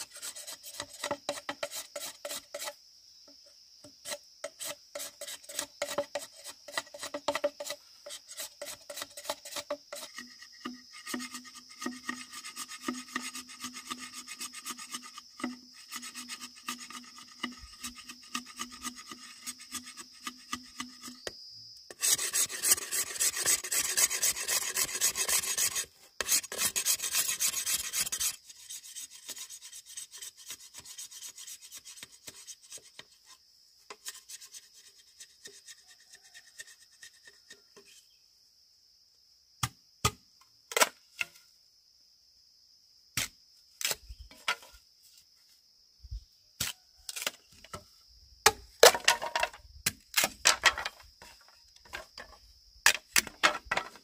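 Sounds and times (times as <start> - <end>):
hand tool rasping bamboo: 0.0 - 2.8, 4.0 - 21.3, 21.9 - 37.7.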